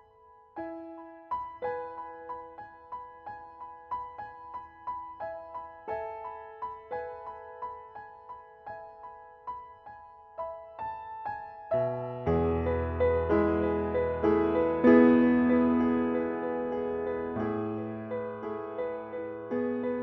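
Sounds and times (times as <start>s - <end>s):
soft piano music: 0.0s - 20.0s.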